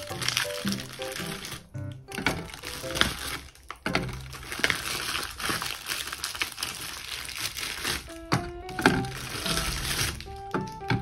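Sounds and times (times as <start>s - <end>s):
carton knocking on plastic: 0.0s - 5.6s, 8.0s - 11.0s
soft background music: 0.0s - 6.1s, 7.3s - 11.0s
cartons crinkling: 0.0s - 11.0s.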